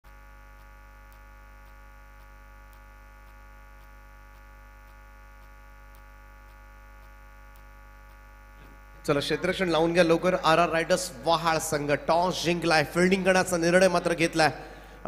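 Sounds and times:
electrical hum: 0.0s - 15.0s
faint ticks: 0.1s - 8.9s.

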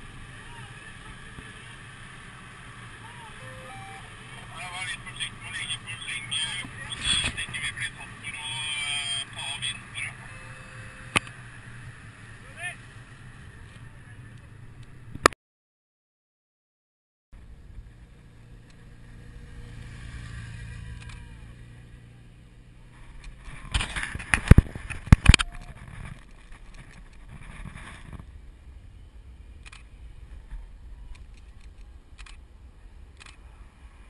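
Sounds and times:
bicycle road noise: 0.0s - 15.3s, 17.4s - 34.0s
wind noise: 22.9s - 34.0s.

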